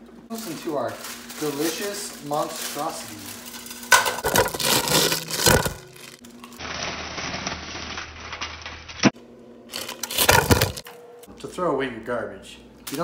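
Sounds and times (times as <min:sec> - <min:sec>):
dry noodles crunching: 0:00.3 - 0:07.0, 0:09.7 - 0:10.9
wrapper crinkling: 0:00.3 - 0:08.8, 0:09.7 - 0:10.9.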